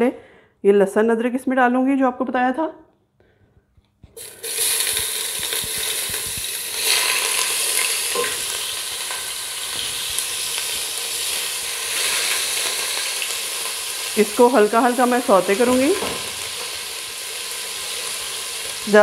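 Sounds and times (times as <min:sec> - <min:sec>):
paste sizzling in hot oil: 0:04.2 - 0:19.0.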